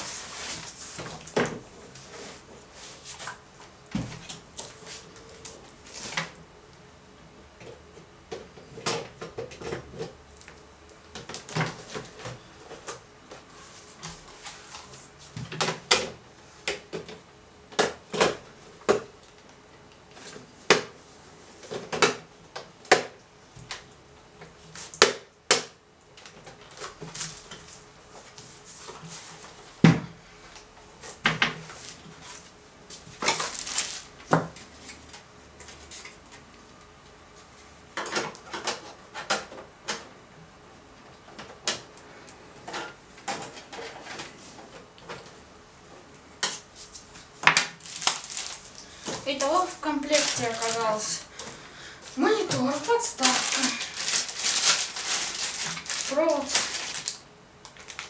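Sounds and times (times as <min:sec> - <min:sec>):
rustling: 0:31.6 - 0:34.2, 0:46.8 - 0:51.4, 0:52.0 - 0:58.0.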